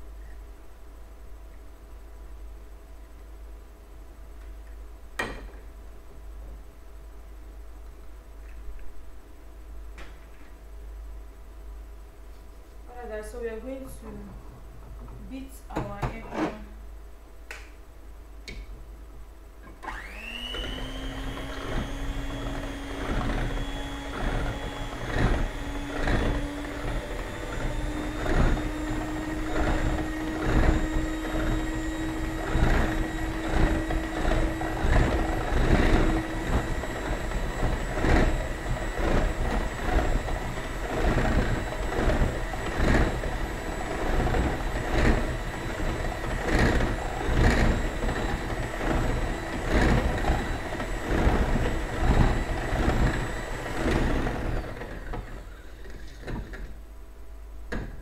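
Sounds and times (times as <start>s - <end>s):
electric hand mixer motor whining: 19.8s - 56.7s.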